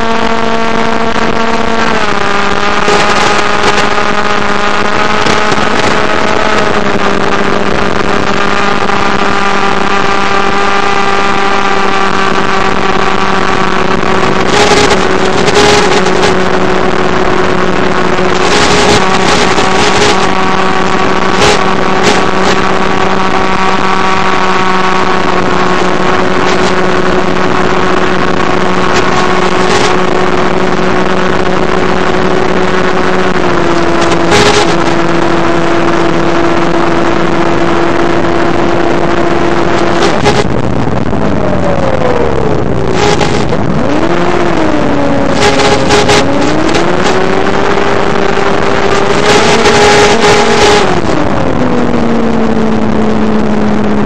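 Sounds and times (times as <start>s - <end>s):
electric motor and propeller drone: 0.0s - 54.0s
radio static crackle: 0.0s - 54.0s.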